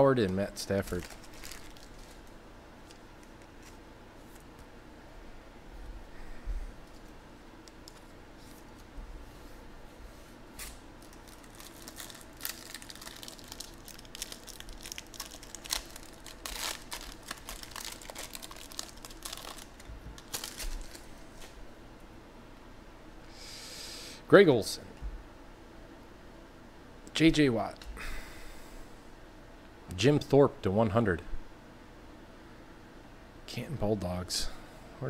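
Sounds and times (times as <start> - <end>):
plastic wrapper crinkling: 0.2 - 4.5, 10.6 - 21.6.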